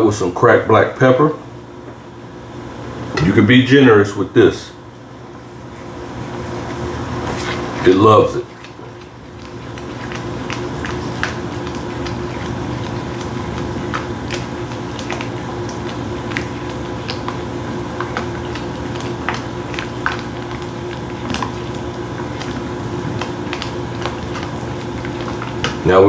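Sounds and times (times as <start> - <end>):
utensil stirring sauce: 6.4 - 26.0.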